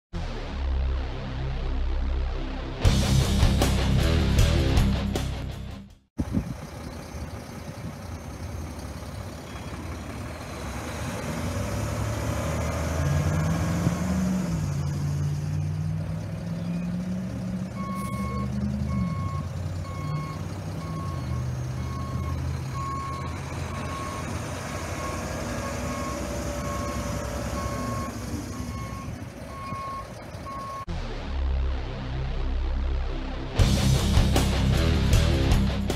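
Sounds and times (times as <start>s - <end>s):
truck diesel engine running: 6.2s - 30.9s
reverse alarm beeping: 17.7s - 30.9s.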